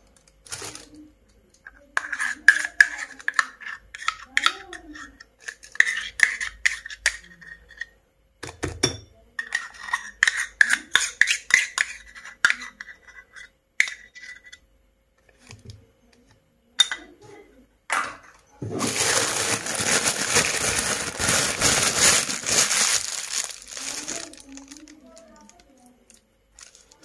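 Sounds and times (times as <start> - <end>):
plastic bag crinkling: 0.4 - 1.0, 18.7 - 27.0
spoon scraping and tapping: 2.0 - 7.8, 9.4 - 14.6.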